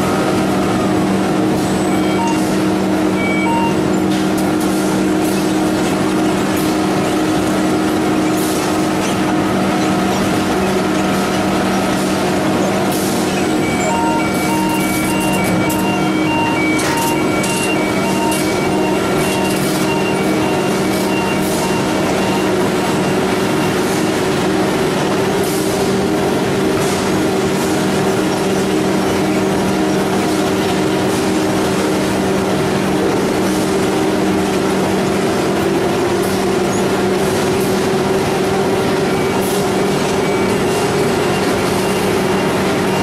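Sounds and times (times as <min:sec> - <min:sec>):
conveyor machinery humming: 0:00.0 - 0:43.0
held machine tones: 0:01.7 - 0:04.1, 0:13.3 - 0:23.9.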